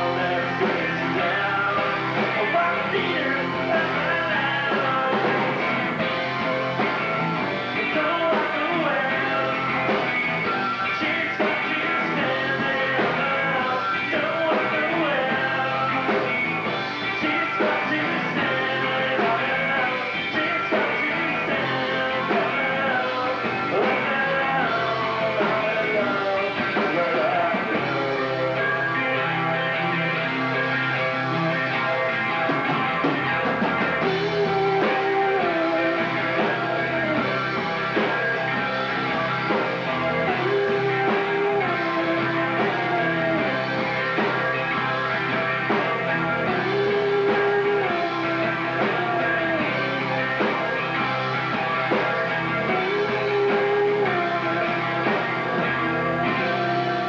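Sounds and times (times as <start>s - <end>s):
live rock band playing: 0.0s - 57.0s.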